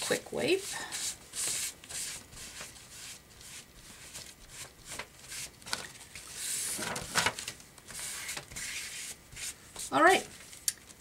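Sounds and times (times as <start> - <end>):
cloth rubbing on paper: 0.5 - 5.5, 7.9 - 10.3.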